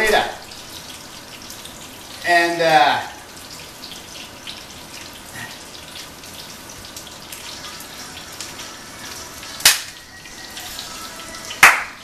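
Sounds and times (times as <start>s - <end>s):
fish sizzling in a pan: 0.0s - 12.0s
sharp loud snap: 9.6s - 9.9s.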